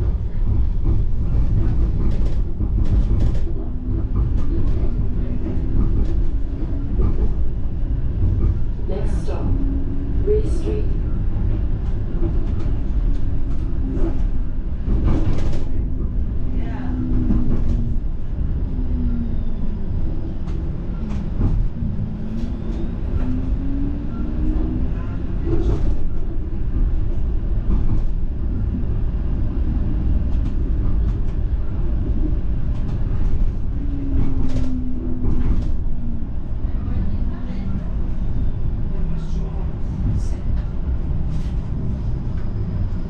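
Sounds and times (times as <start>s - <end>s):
streetcar wheels rumbling: 0.0s - 43.0s.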